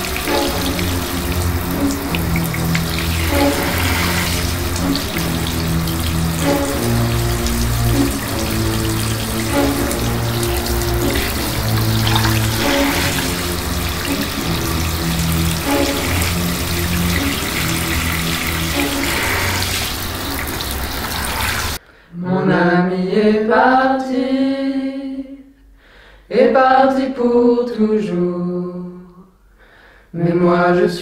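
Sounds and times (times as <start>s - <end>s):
sustained music chords: 0.0s - 21.8s
water splashing down drain: 0.0s - 21.8s.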